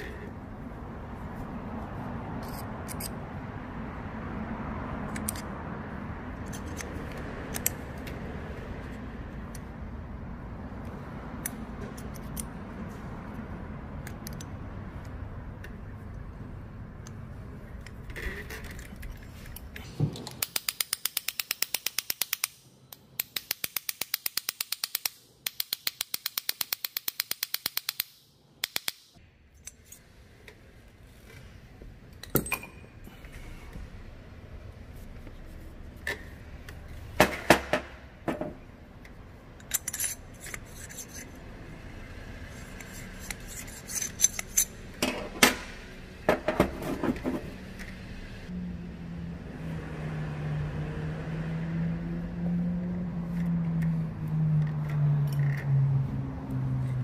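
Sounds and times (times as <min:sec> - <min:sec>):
ratchet wrench clicking: 0:20.2 - 0:30.0, 0:39.0 - 0:41.4, 0:42.5 - 0:44.8
metal parts clanking: 0:39.6 - 0:41.4, 0:42.6 - 0:45.7.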